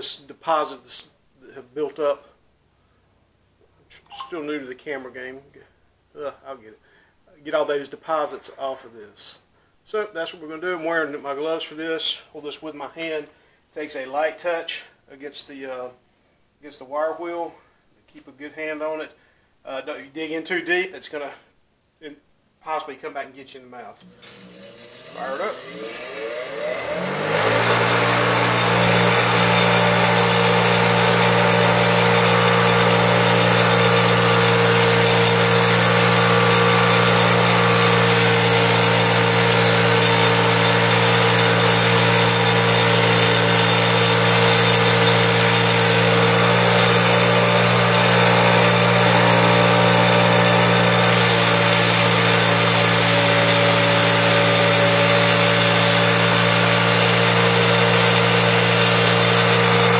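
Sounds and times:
bench grinder motor hum: 24.0s - 59.9s.

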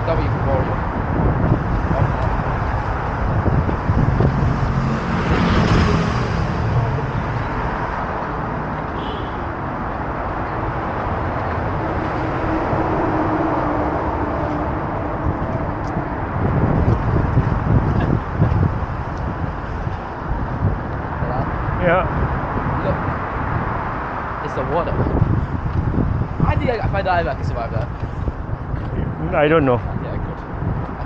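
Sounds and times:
traffic rumble on a bridge: 0.0s - 31.0s.

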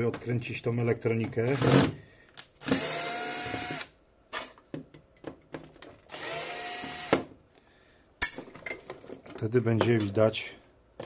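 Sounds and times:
cordless drill whining: 2.6s - 3.9s, 6.1s - 7.2s.

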